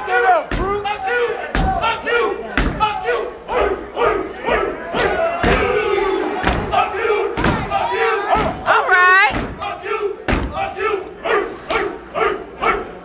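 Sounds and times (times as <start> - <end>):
crowd shouting and yelling: 0.0 - 13.0.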